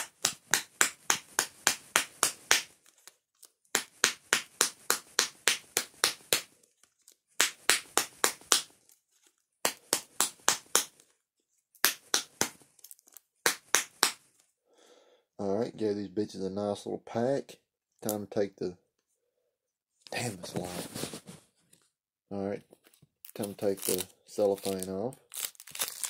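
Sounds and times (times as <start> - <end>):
cigarette pack slapping palm: 0.0 - 2.8, 3.7 - 6.5, 7.4 - 8.7, 9.6 - 11.0, 11.8 - 12.6, 13.4 - 14.3.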